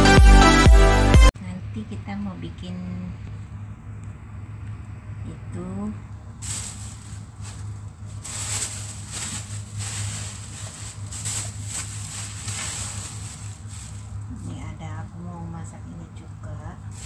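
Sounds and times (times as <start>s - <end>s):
low hum: 1.4s - 17.0s
rustling and handling on counter: 6.4s - 14.6s.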